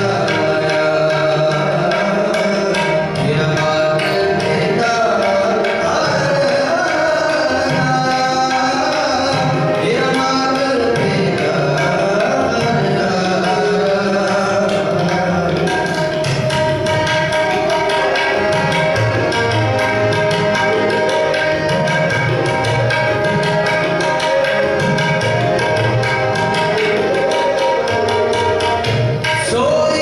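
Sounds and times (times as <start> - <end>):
harmoniums playing chords: 0.0 - 30.0
tabla strokes: 0.0 - 30.0.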